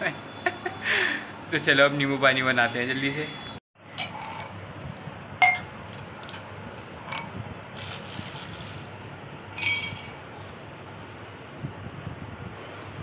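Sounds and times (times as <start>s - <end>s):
sharp clink: 9.6s - 10.2s.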